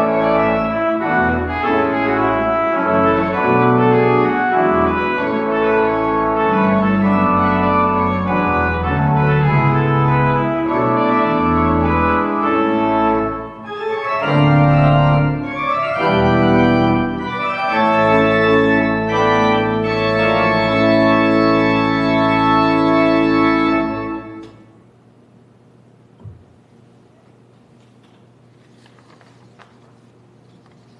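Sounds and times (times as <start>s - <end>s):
church organ chords: 0.0s - 24.7s.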